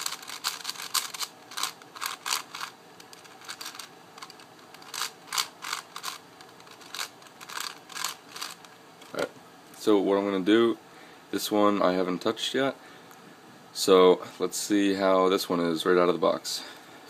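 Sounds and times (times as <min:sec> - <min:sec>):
plastic puzzle cube clicking: 0:00.0 - 0:08.6.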